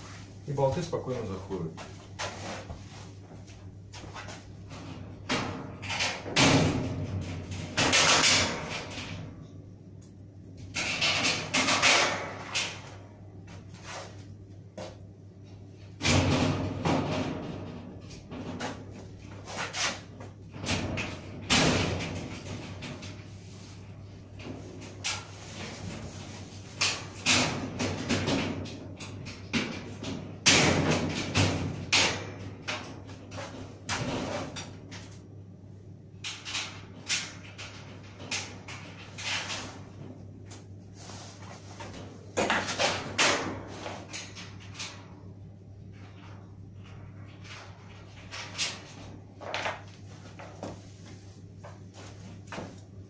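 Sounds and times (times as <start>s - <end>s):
thin sheet metal knocks and rattles: 4.0s - 9.5s, 10.5s - 13.8s, 15.7s - 35.3s, 36.2s - 40.8s, 41.4s - 50.9s.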